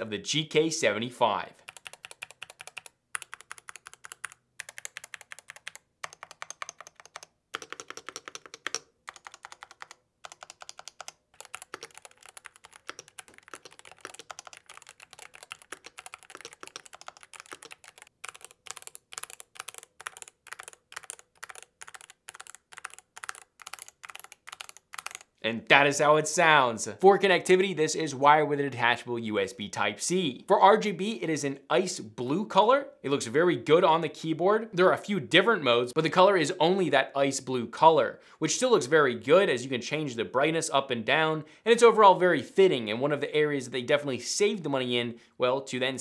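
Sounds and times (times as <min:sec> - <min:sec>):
mechanical keyboard typing: 0:01.7 - 0:25.3.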